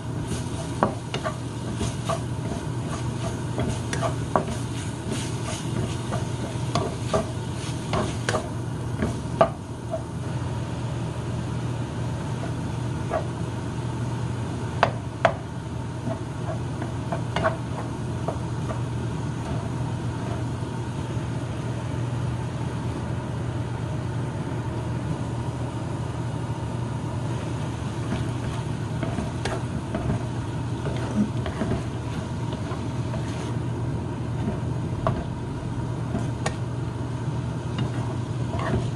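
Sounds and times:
meat sizzling in a wok: 0.0s - 9.7s
steady low hum: 0.0s - 38.9s
spatula knocking on pan: 0.7s - 4.6s, 5.8s - 9.6s.

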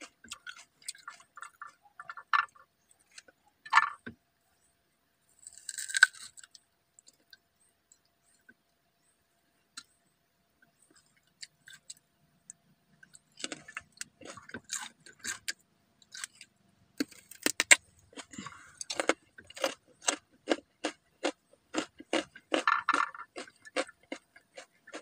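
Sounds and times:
chewing raw vegetables: 0.0s - 3.9s, 10.9s - 25.0s.

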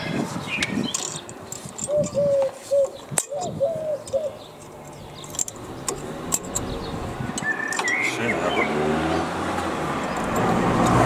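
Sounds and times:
brake parts clicking: 0.6s - 8.2s, 9.5s - 11.0s
pigeon cooing: 1.9s - 4.5s.

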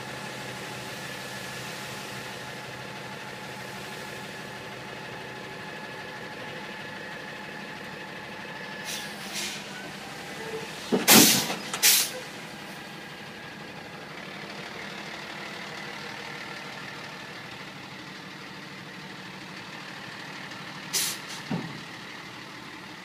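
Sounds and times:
truck engine idling: 0.0s - 23.0s
air hiss blasts: 10.8s - 12.2s, 21.0s - 21.4s.

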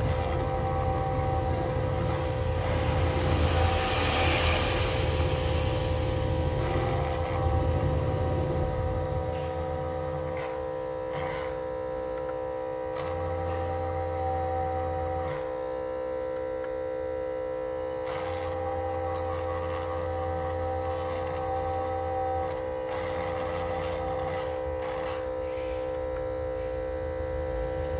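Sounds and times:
deep low hum: 0.0s - 12.2s
electrical hum: 0.0s - 27.9s.

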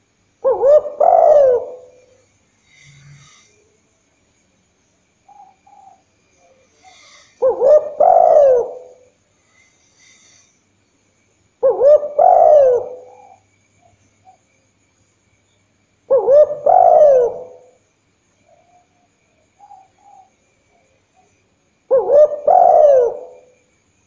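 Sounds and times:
dove cooing: 0.4s - 2.2s, 5.3s - 9.1s, 11.6s - 13.4s, 16.1s - 17.8s, 21.9s - 23.6s.

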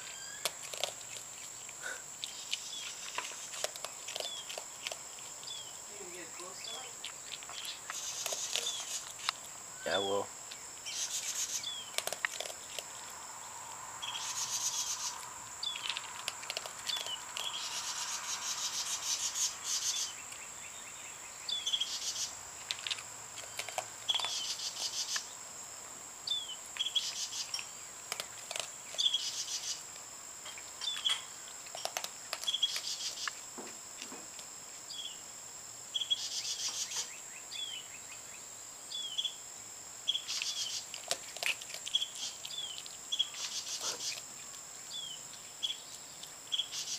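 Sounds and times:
bird chirping: 0.0s - 0.7s, 5.4s - 22.4s, 23.4s - 25.4s, 26.2s - 29.8s, 30.8s - 31.3s, 32.4s - 33.3s, 35.9s - 39.4s, 40.1s - 40.9s, 41.8s - 44.2s, 44.9s - 46.9s
high insect drone: 0.0s - 46.9s.

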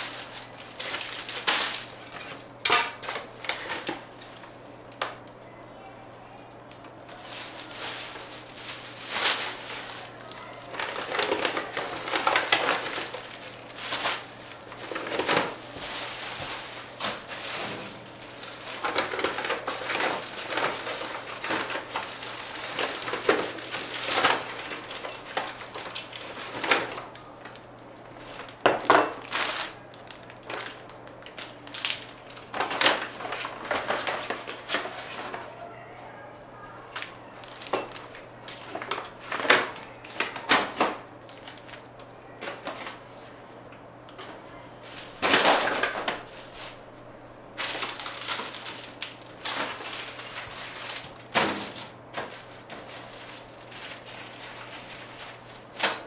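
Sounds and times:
rustling: 6.7s - 27.2s, 44.8s - 55.8s.

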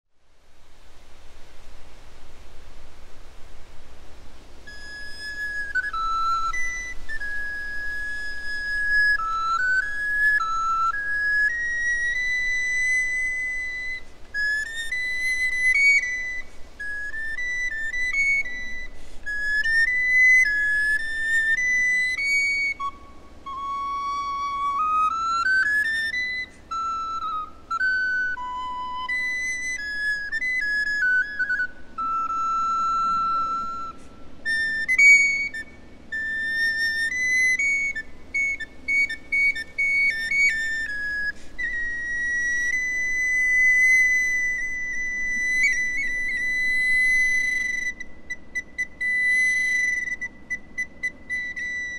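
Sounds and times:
recorder playing high notes: 4.7s - 51.9s.

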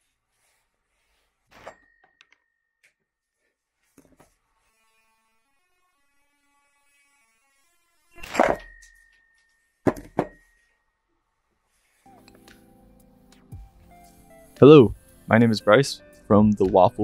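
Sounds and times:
mallets knocking on wooden bench: 9.9s - 10.5s.

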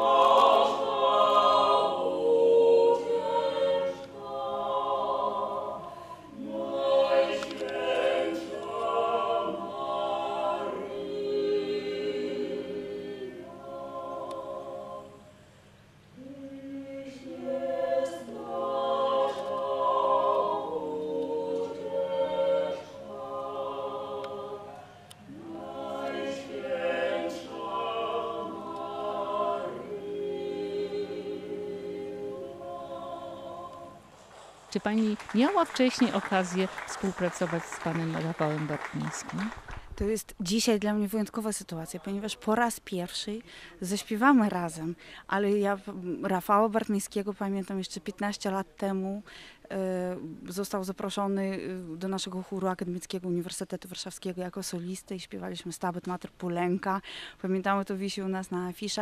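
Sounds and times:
vocal ensemble singing a cappella: 0.0s - 39.7s.

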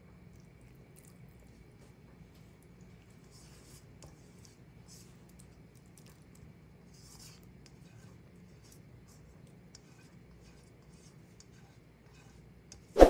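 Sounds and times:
soft rustles and light clicks: 0.0s - 7.8s.

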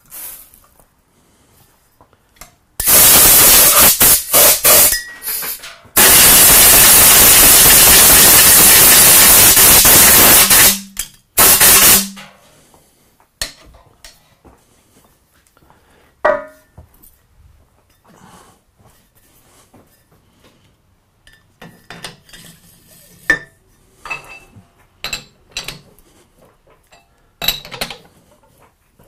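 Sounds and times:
compressed air blasts hissing: 0.0s - 0.6s, 2.8s - 12.2s.

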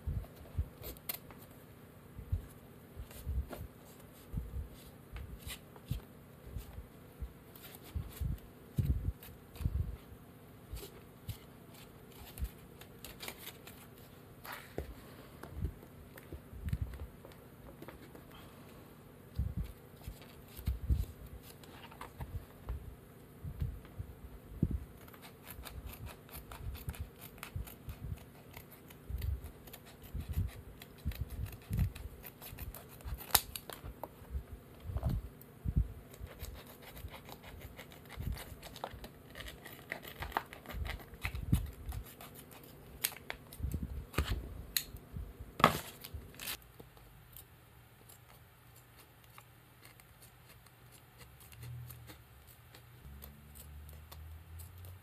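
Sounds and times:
low steady hum: 0.0s - 55.0s
masking tape handling: 10.8s - 14.1s, 25.0s - 34.2s, 36.1s - 45.0s, 45.6s - 55.0s.

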